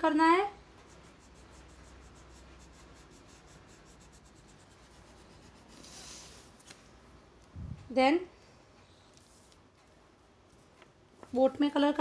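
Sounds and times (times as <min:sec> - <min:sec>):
crayon rubbing on paper: 0:00.8 - 0:06.4.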